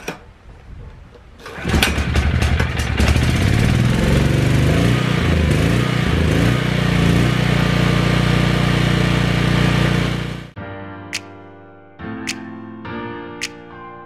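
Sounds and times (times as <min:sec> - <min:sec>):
generator engine starting and running: 0:01.4 - 0:10.6.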